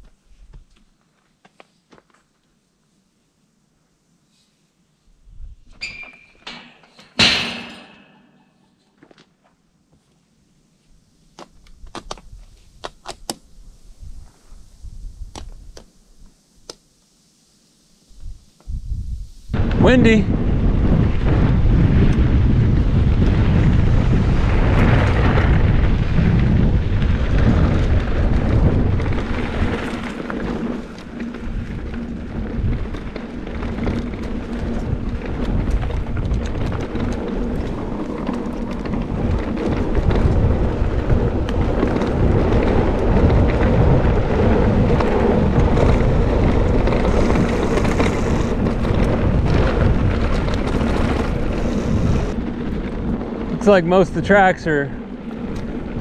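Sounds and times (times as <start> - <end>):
bike clicks and knocks: 5.8 - 9.6
wind buffeting microphone: 18.1 - 56.0.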